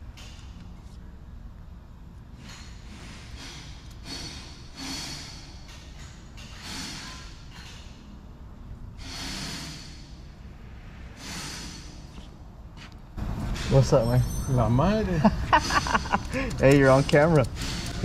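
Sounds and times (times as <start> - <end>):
steady low rumble: 11.9 - 18.0
person breathing hard: 16.2 - 16.6.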